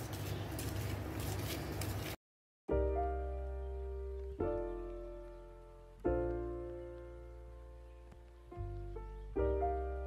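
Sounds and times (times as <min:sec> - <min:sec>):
slow piano chords: 0:02.7 - 0:10.0.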